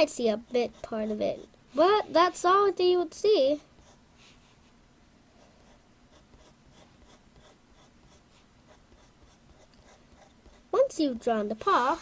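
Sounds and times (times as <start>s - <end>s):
pencil scratching on paper: 0.0s - 2.3s, 3.5s - 4.0s, 5.4s - 10.9s.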